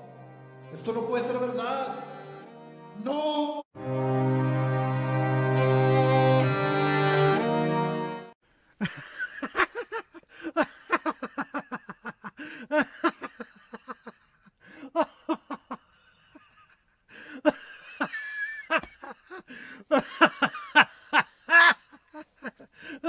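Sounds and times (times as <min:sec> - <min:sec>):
person laughing: 0:08.8 - 0:16.8, 0:17.4 - 0:23.0.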